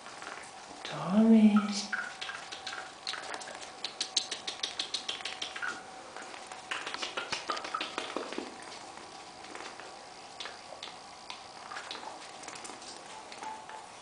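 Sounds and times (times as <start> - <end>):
parrot clicking and tapping: 1.9 - 8.8, 10.4 - 13.8.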